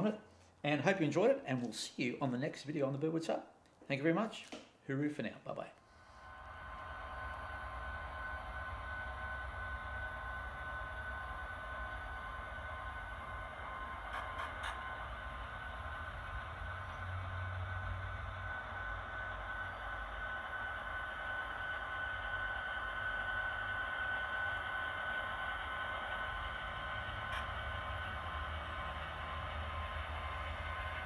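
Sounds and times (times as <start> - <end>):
electric motor whine: 6.1 - 31.0
wheel and track rumble: 6.8 - 31.0.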